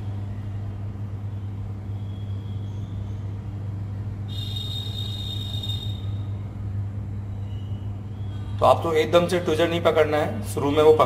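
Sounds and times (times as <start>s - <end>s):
high thin whine: 3.9s - 9.0s.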